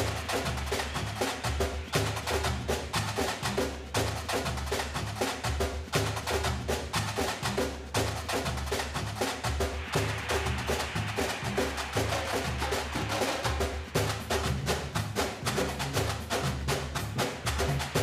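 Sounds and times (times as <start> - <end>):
background music with fast percussion: 0.0 - 18.0.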